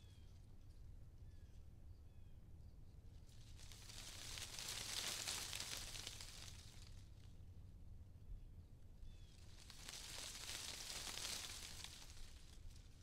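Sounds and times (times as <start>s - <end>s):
tree leaves rustling: 3.2s - 7.2s, 9.2s - 13.0s.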